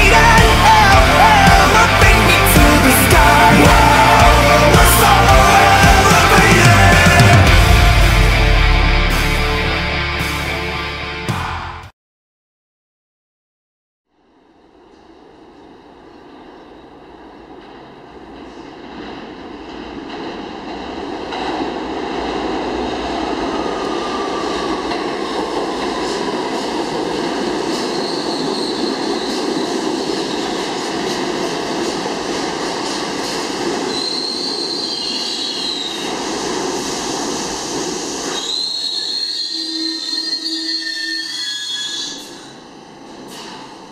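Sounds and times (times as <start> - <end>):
train wheels rumbling and rattling: 0.0 - 8.5, 14.8 - 43.9
high-pitched wheel squeal: 27.9 - 29.4, 33.9 - 36.1, 38.3 - 42.6.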